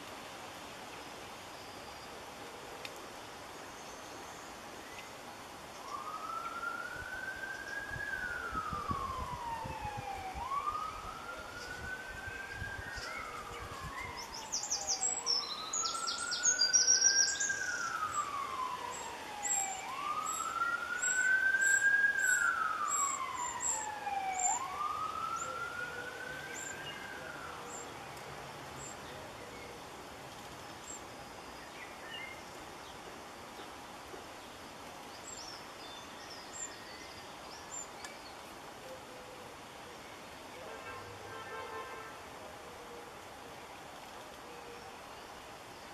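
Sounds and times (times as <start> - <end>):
wrens chirping: 3.5 - 29.8, 30.5 - 33.8
emergency siren wailing: 5.9 - 27.9.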